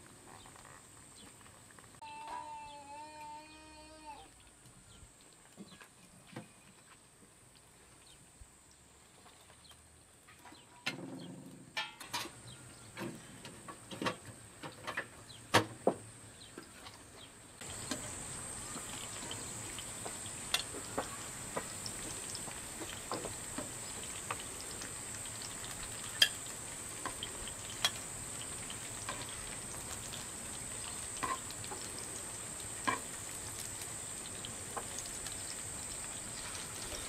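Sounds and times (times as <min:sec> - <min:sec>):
metal clanks and knocks: 0:10.8 - 0:12.4
vegetables frying in oil: 0:11.6 - 0:37.0.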